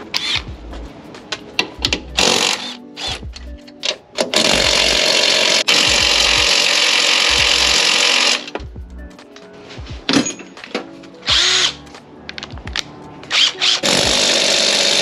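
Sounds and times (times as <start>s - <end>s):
cordless impact wrench hammering: 13.3s - 15.0s.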